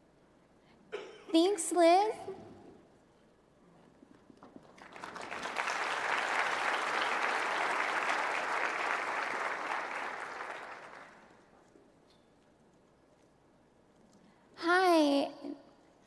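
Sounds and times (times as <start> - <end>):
large audience applauding: 4.6 - 11.4.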